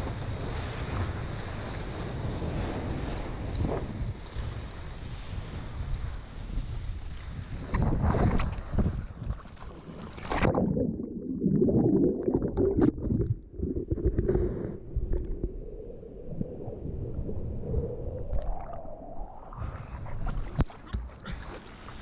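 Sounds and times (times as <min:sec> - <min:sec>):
muffled churning sea water: 0:00.0 - 0:22.0.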